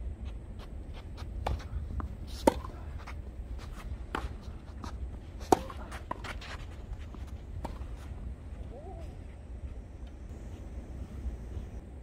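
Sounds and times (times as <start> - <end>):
footsteps: 0.2 - 11.8
racket striking ball: 1.4 - 3.0, 5.4 - 6.6.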